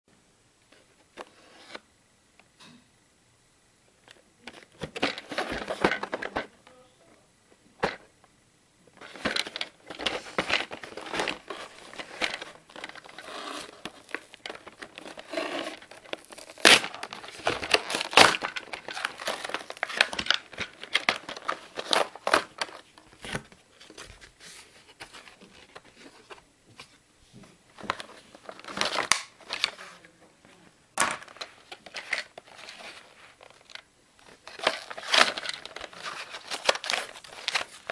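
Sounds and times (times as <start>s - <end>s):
plastic packaging crinkling and tearing: 9.0s - 24.2s, 27.8s - 30.0s, 31.2s - 37.9s.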